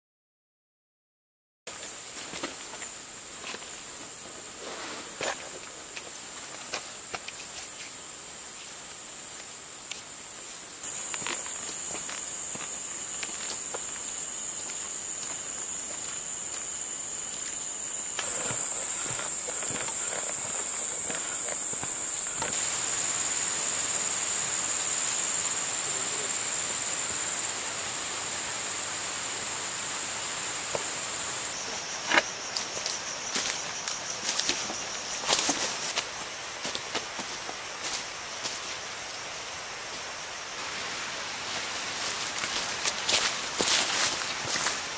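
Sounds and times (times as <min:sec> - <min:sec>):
high-pitched insect drone: 0:01.7 - 0:44.9
footsteps on dry ground: 0:10.8 - 0:22.7, 0:41.6 - 0:44.9.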